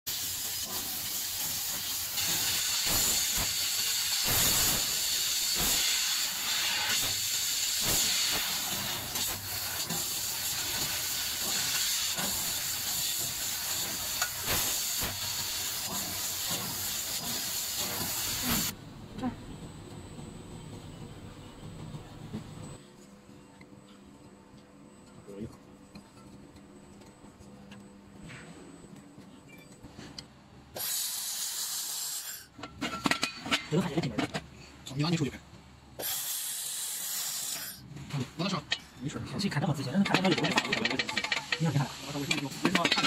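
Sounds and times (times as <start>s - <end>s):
laser cutter gas jet hissing: 0.1s - 18.8s, 30.7s - 32.5s, 36.0s - 37.8s, 39.7s - 43.0s.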